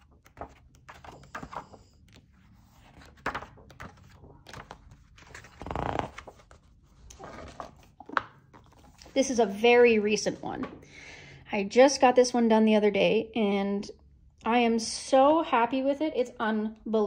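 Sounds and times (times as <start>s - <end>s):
book pages turning: 0.0s - 9.2s.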